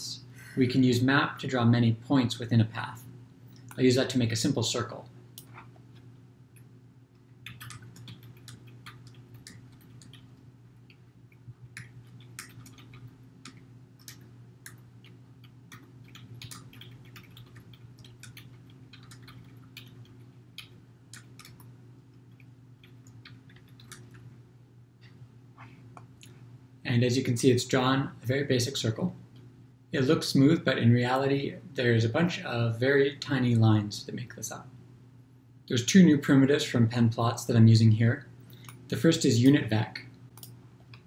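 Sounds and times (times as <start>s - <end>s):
faint low hum: 0.0s - 41.0s
keyboard keys clicking: 7.4s - 10.3s, 11.6s - 21.7s, 22.4s - 24.2s.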